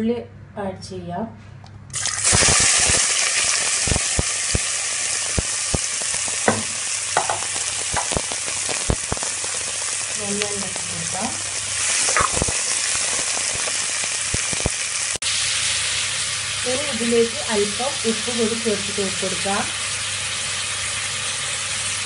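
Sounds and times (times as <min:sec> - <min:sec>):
onions sizzling in oil: 0:02.0 - 0:22.0
sharp oil pops: 0:05.3 - 0:09.4, 0:12.0 - 0:12.6.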